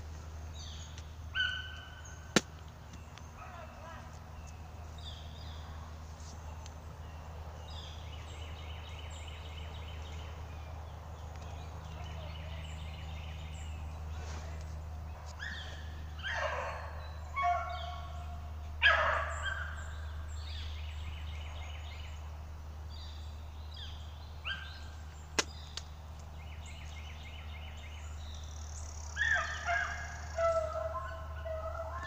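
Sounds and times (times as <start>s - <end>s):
dogs yelping and baying: 1.3s - 2.1s, 15.2s - 19.8s, 29.1s - 32.0s.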